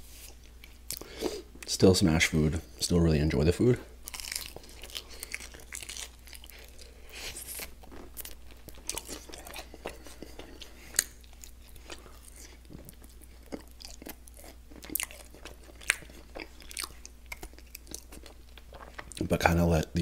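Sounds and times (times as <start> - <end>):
chewing and biting: 4.0 - 19.3.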